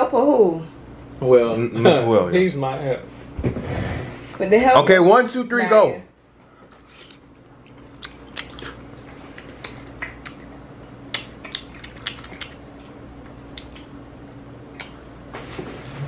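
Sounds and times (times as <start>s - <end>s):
steady low hum: 0.0s - 16.0s
soft chewing: 6.5s - 14.0s.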